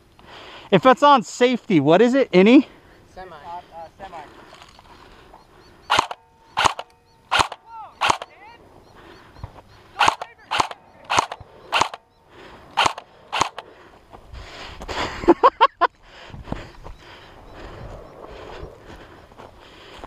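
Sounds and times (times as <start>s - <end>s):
airsoft rifle shots: 5.9s - 8.4s, 10.0s - 12.1s, 12.7s - 13.7s.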